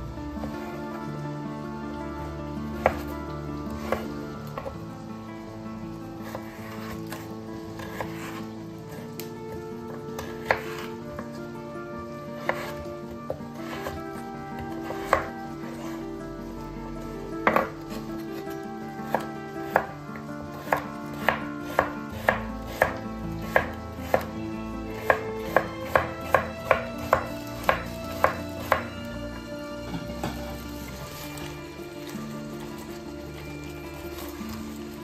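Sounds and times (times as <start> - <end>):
knife chopping on cutting board: 2.8 - 3.1, 3.8 - 4.7, 6.2 - 9.3, 10.2 - 11.3, 12.4 - 14.0, 14.7 - 16.0, 17.4 - 18.3, 19.1 - 19.9, 20.5 - 24.3, 25.0 - 28.9.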